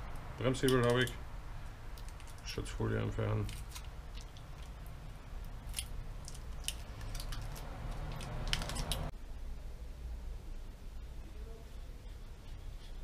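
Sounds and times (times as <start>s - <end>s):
plastic film peeling crackles: 1.9s - 9.1s.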